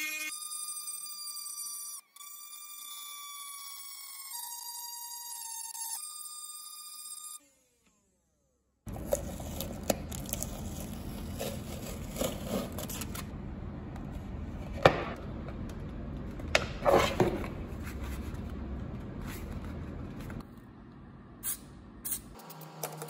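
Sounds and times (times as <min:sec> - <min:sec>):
foil tape peeling off plastic: 0:08.9 - 0:13.3.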